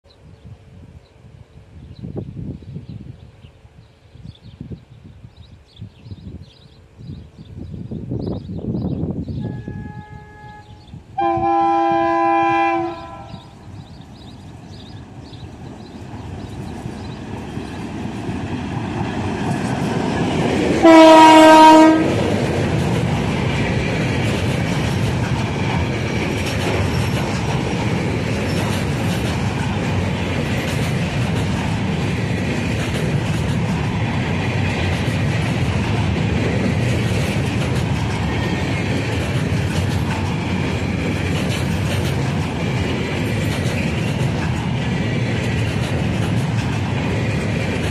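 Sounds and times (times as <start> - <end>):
train wagons rumbling on rails: 7.0 - 47.9
locomotive horn: 9.4 - 13.5, 20.8 - 22.2.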